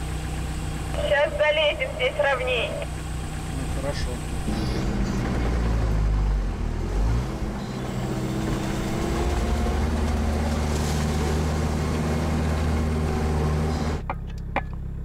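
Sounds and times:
diesel engine running under load: 0.0s - 15.0s.

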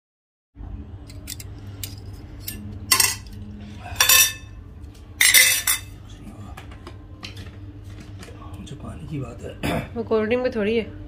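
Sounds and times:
low steady hum: 0.6s - 11.0s
spoon and plates clinking: 1.1s - 3.4s, 4.0s - 4.5s, 5.2s - 5.9s.

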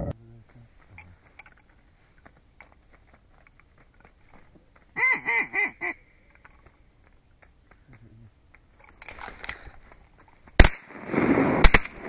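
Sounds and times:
faint clicks and rustles: 0.4s - 5.0s, 6.2s - 10.6s.

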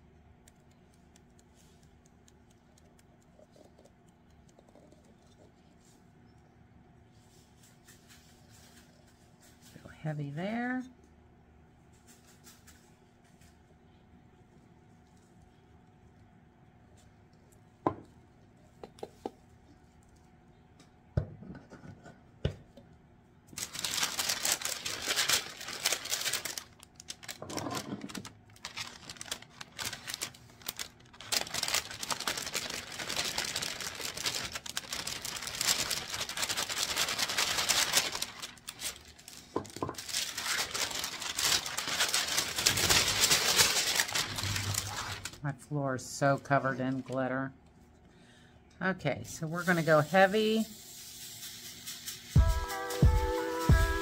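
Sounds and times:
paper crinkling and rustling: 23.5s - 45.4s.

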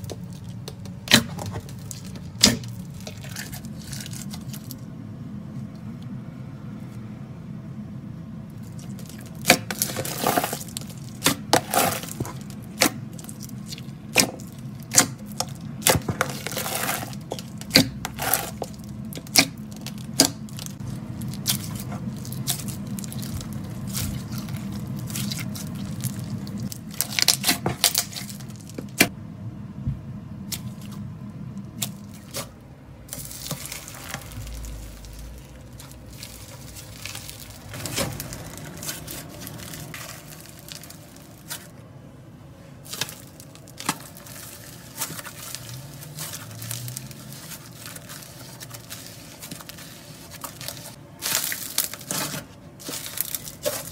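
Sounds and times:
slime squishing: 0.0s - 4.9s, 8.5s - 29.1s, 30.4s - 41.8s, 42.7s - 53.9s
slime popping and crackling: 8.6s - 29.1s, 33.1s - 41.7s.

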